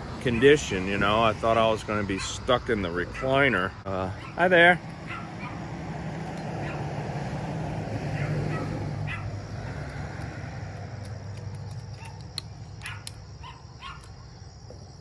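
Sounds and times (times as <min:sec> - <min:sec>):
distant dog barking: 0:00.3 - 0:00.6, 0:02.1 - 0:02.4, 0:04.1 - 0:05.7, 0:06.5 - 0:07.0, 0:08.0 - 0:09.4, 0:12.8 - 0:14.1
vehicle engine passing: 0:03.8 - 0:12.7.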